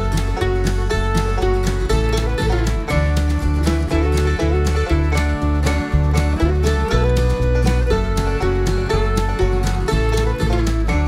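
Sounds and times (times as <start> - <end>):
country music: 0.0 - 11.0.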